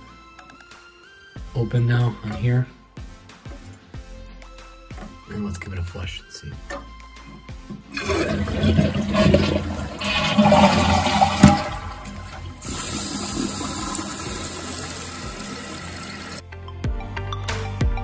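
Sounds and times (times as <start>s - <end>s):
toilet flush water rushing: 7.8s - 16.4s
tank refilling hiss: 8.0s - 16.4s.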